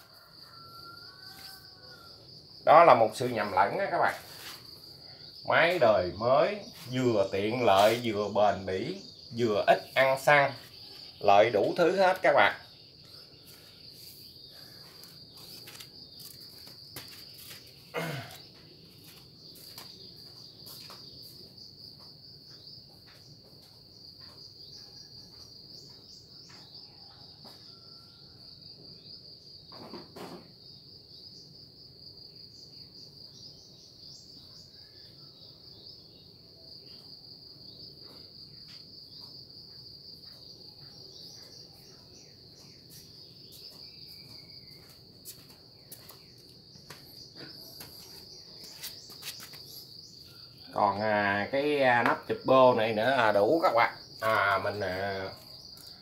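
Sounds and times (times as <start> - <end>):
insect trilling: 0.0 - 21.8, 40.2 - 56.0.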